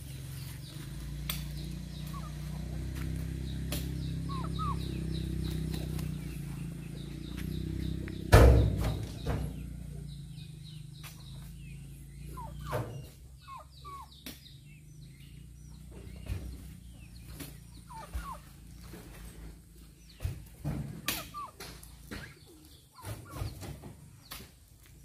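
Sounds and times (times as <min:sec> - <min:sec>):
small birds chirping: 0:00.0 - 0:25.0
chicken clucking: 0:00.7 - 0:08.2, 0:12.3 - 0:14.3, 0:15.8 - 0:19.6, 0:20.8 - 0:24.4
fruit bunches thudding into truck bed: 0:08.2 - 0:09.6.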